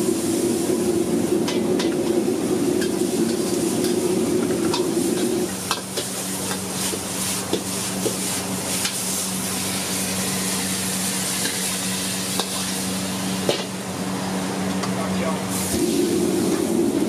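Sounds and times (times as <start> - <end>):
pork sizzling in a wok: 0.0 - 14.8, 15.4 - 17.0
steady low hum: 0.0 - 17.0
ladle stirring in a wok: 4.6 - 13.1.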